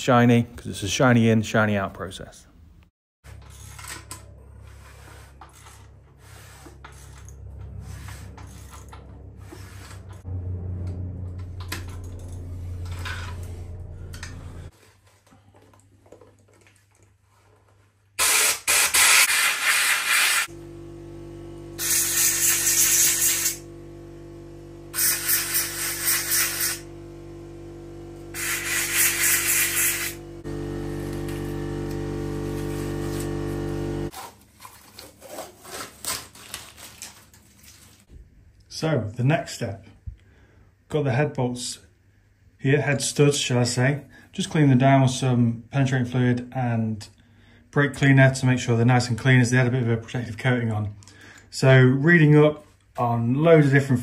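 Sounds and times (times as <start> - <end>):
low steady hum: 5.8 - 14.7
compressed air hissing bursts: 18.2 - 20.5, 21.8 - 23.6, 24.9 - 26.9, 28.3 - 30.2.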